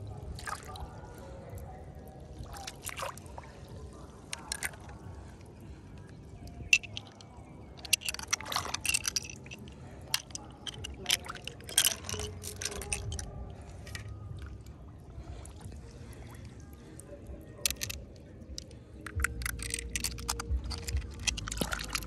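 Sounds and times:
small water splashes: 0:02.0 - 0:13.2
shells clicking together: 0:06.5 - 0:13.3, 0:17.6 - 0:22.0.

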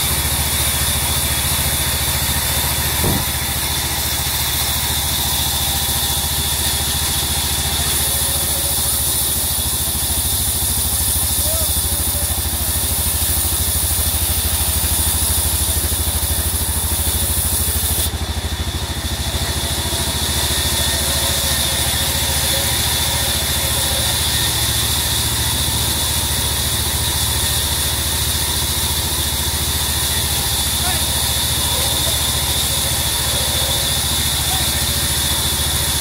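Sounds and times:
band saw drone: 0:00.0 - 0:36.0
saw blade ripping through wood: 0:02.6 - 0:04.2.

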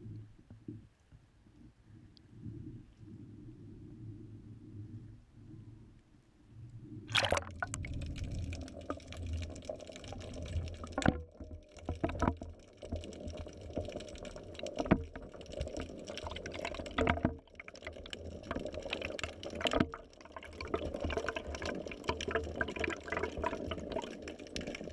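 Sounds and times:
muffled underwater rumble: 0:01.6 - 0:12.4
camera splashing into water: 0:07.1 - 0:07.9.

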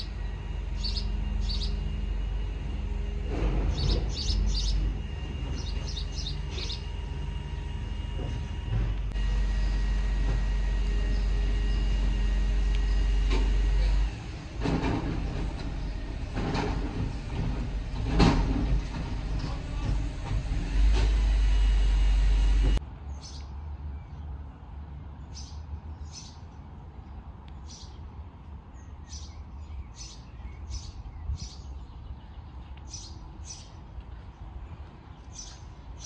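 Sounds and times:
small birds chirping: 0:00.0 - 0:02.0, 0:03.7 - 0:07.0, 0:23.1 - 0:24.4, 0:25.2 - 0:28.1, 0:28.8 - 0:36.0.

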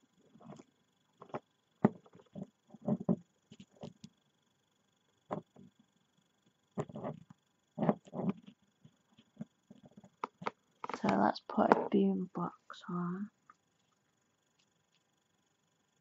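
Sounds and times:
action figure knocks and clicks: 0:06.8 - 0:07.2.

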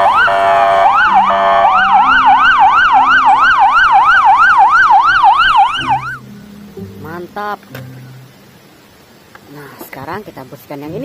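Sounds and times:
police car sirens wailing and yelping: 0:00.0 - 0:06.2.

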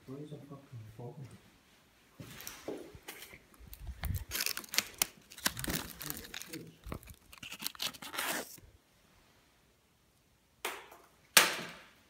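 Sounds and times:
rustling and crunching: 0:02.2 - 0:08.6.

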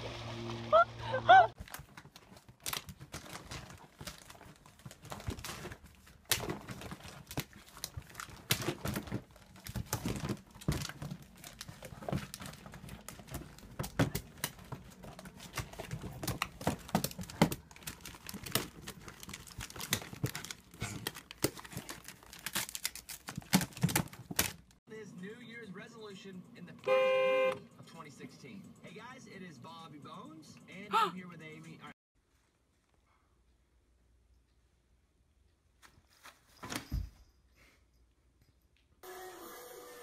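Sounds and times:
plastic bin and paper rustling: 0:01.5 - 0:24.8.

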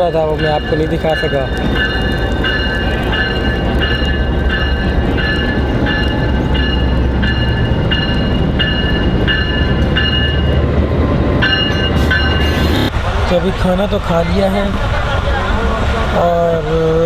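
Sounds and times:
bell-like tone ringing: 0:00.0 - 0:10.6, 0:11.4 - 0:12.7
diesel locomotive rumbling: 0:00.0 - 0:17.0.

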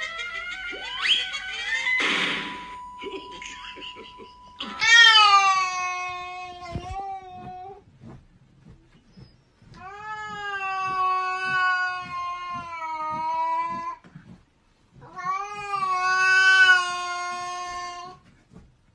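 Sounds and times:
cat yowling: 0:04.6 - 0:07.8.

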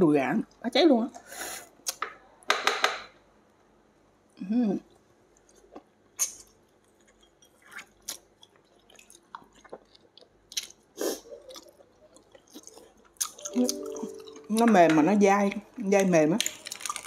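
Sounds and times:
person chewing meat: 0:05.4 - 0:14.4.

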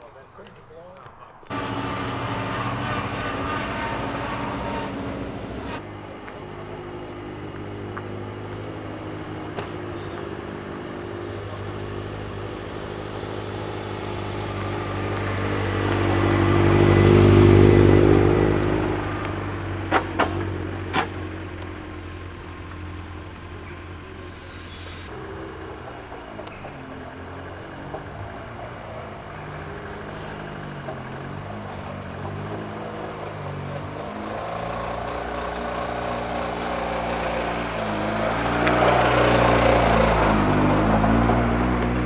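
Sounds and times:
car engine revving: 0:01.4 - 0:42.0
sharp exhaust pops: 0:19.2 - 0:21.7.

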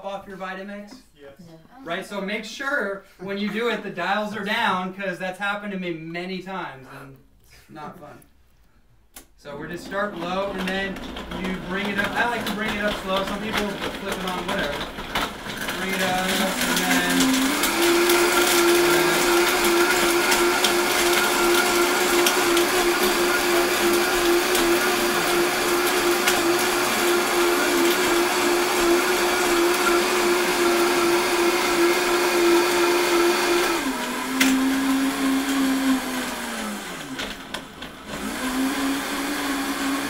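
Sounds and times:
blender motor running: 0:09.9 - 0:40.0.

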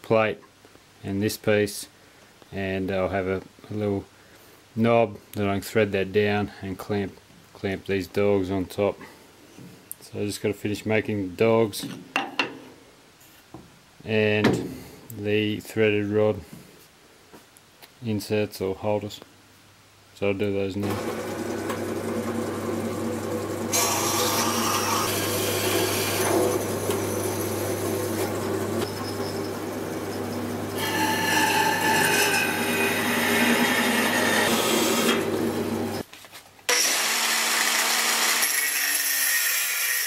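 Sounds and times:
angle grinder cutting steel: 0:20.8 - 0:36.0, 0:36.7 - 0:40.0
bandsaw cutting steel: 0:20.8 - 0:36.0, 0:36.7 - 0:40.0.

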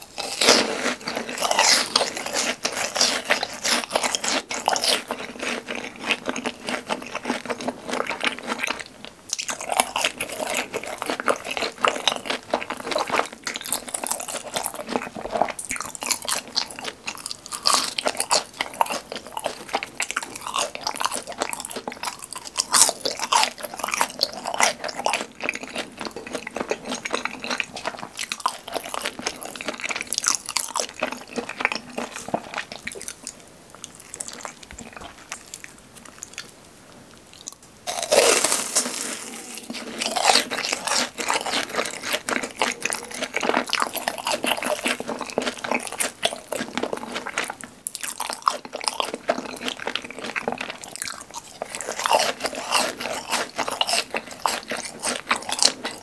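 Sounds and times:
chewing crunchy snacks: 0:00.0 - 0:56.0.

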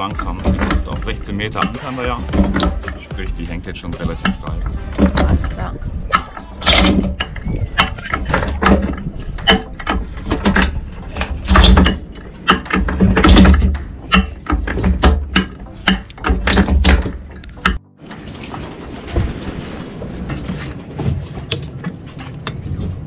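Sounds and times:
anchor chain clanking: 0:00.0 - 0:23.0.

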